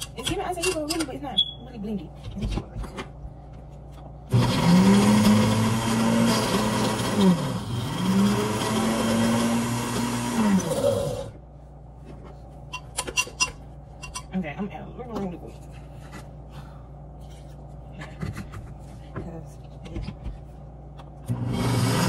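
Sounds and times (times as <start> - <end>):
blender running: 4.3 - 11.4, 21.3 - 22.0.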